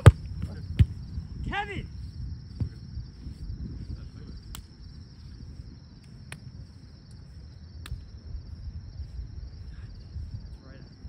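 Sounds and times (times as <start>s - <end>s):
insects trilling: 0.0s - 11.0s
wind rumble on microphone: 0.0s - 11.0s
faint sharp clicks: 4.5s - 4.7s.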